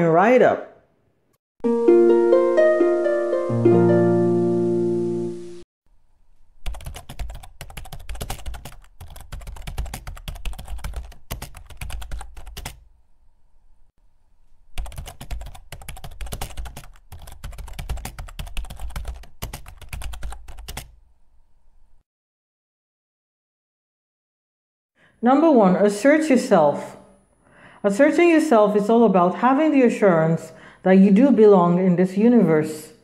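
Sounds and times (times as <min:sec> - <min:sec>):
computer keyboard typing: 0:06.6 - 0:12.8, 0:14.8 - 0:21.0.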